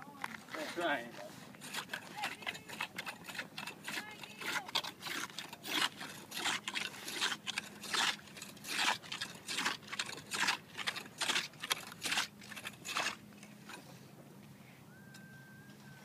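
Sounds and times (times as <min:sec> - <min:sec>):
ice chisel chopping ice: 0:01.6 - 0:13.2.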